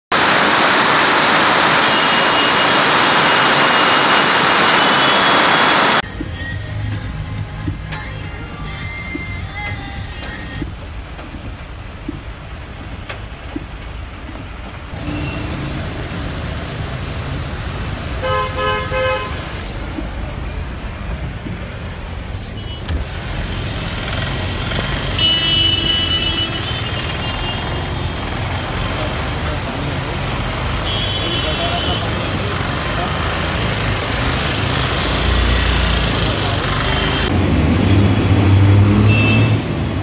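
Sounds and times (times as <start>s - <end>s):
traffic in heavy rain: 0.1s - 40.0s
car horn: 1.8s - 6.0s, 15.0s - 15.8s, 18.2s - 19.5s, 25.2s - 27.6s, 30.8s - 32.1s, 37.9s - 39.8s
higher-pitched horn: 1.8s - 6.0s, 37.9s - 39.7s.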